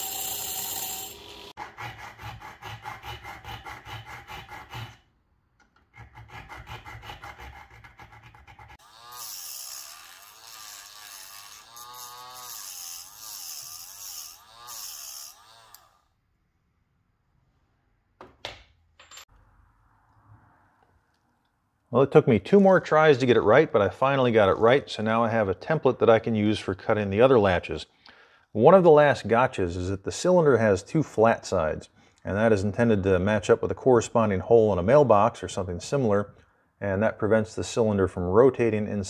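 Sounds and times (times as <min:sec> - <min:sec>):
hand file rasping on metal: 0:00.0 - 0:05.0, 0:05.8 - 0:16.0
rotary tool grinding metal: 0:00.0 - 0:05.0, 0:05.9 - 0:16.1.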